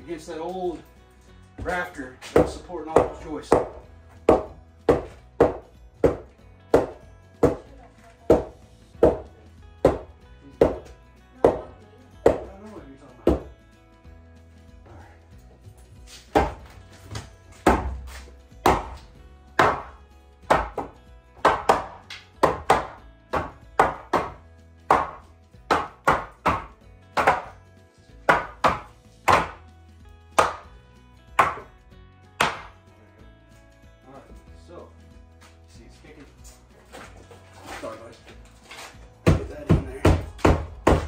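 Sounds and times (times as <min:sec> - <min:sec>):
faint music: 0:00.0 - 0:41.0
hammer knocking wood: 0:01.6 - 0:07.7, 0:08.3 - 0:12.5, 0:13.2 - 0:13.5, 0:16.3 - 0:16.7, 0:17.6 - 0:18.0, 0:18.6 - 0:19.0, 0:19.6 - 0:27.5, 0:28.3 - 0:29.6, 0:30.4 - 0:30.6, 0:31.4 - 0:31.7, 0:32.4 - 0:32.8, 0:39.2 - 0:41.0.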